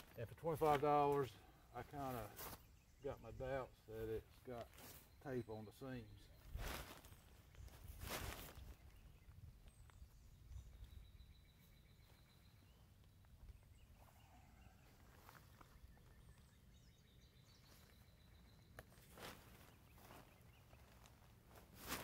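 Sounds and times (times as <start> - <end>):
distant bird chirps: 0.0 - 22.0
tent fabric rustling: 21.0 - 22.0.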